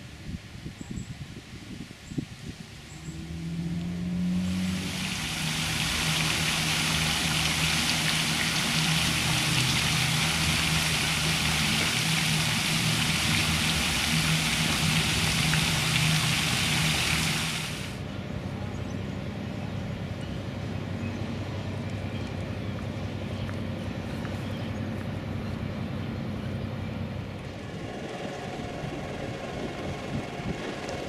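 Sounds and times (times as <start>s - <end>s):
low steady hum: 2.8s - 31.0s
fountain water splashing: 3.8s - 18.0s.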